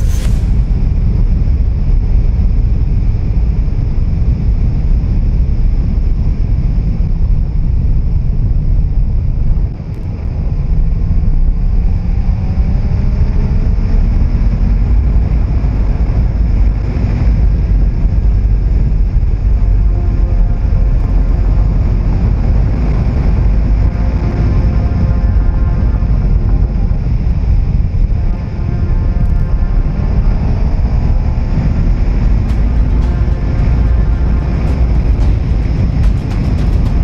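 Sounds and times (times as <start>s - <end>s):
wind rush on microphone: 0.0s - 37.0s
motorcycle engine: 11.8s - 37.0s.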